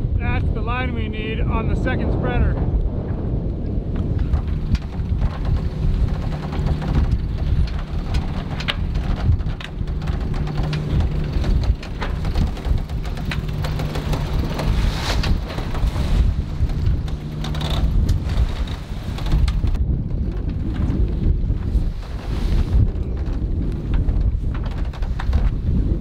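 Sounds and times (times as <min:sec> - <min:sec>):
wind buffeting microphone: 0:00.0 - 0:26.0
rigging clicks and knocks: 0:03.6 - 0:26.0
winch ratcheting clicks: 0:04.0 - 0:19.8.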